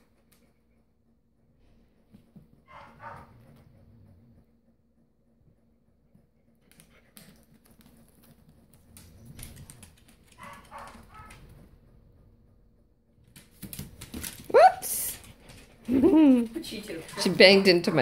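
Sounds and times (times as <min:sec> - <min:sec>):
dog claws ticking on wood floor: 0:13.2 - 0:14.5.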